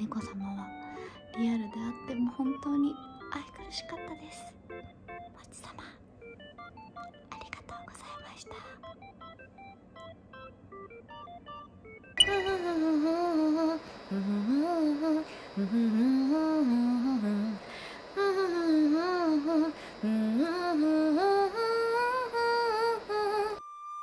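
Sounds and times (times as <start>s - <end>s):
woman humming a tune: 12.2s - 23.6s.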